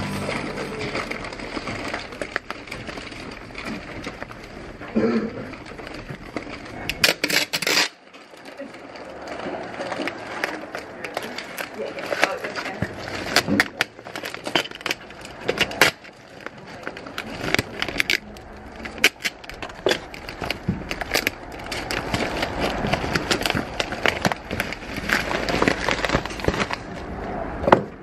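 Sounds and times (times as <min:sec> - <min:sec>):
paper rustling: 0:00.0 - 0:27.2
plastic crinkling: 0:00.0 - 0:27.4
small clicks and crackles: 0:00.8 - 0:27.4
adhesive strip peeled off: 0:07.0 - 0:08.0.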